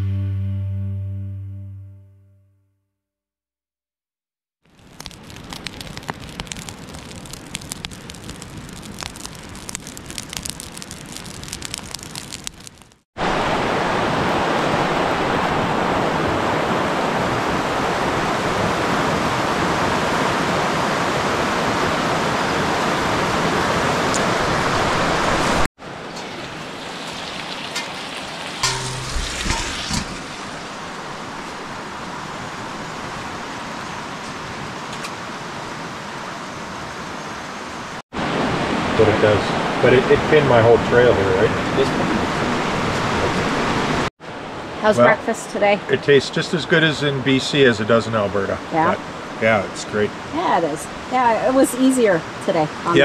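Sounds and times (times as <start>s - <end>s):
raindrops pattering: 4.7s - 13.0s, 25.8s - 33.5s
rushing water: 13.2s - 53.0s.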